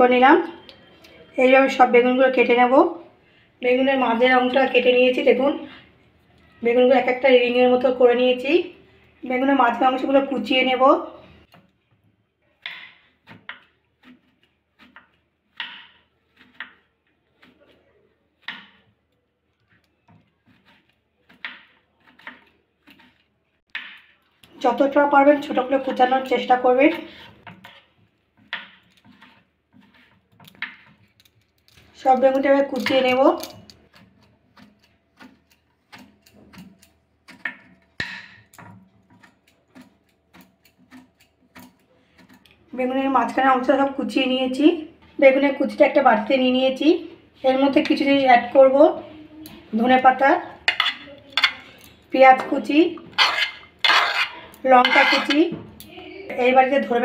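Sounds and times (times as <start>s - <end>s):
knife chopping on wooden board: 12.6s - 16.8s, 18.4s - 18.9s, 20.2s - 24.1s, 27.0s - 31.0s.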